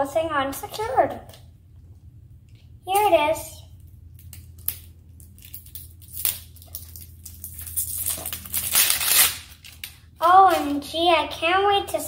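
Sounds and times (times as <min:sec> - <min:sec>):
plastic wrap crackling: 0:04.2 - 0:10.9.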